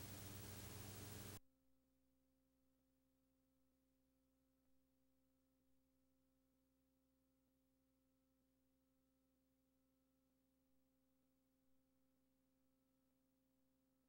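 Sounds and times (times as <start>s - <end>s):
faint electrical hum: 0.0s - 1.4s
tape hiss with low hum: 0.0s - 1.4s.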